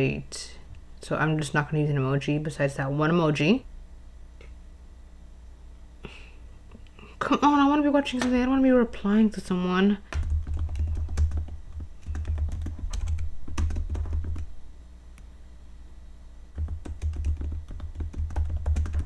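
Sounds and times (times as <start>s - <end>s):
rapid typing on laptop keyboard: 10.1s - 14.5s, 16.5s - 19.0s.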